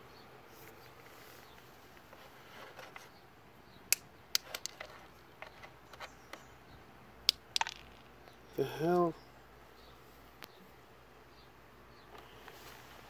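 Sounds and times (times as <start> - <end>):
hard parts clicking and knocking: 3.9 - 6.5.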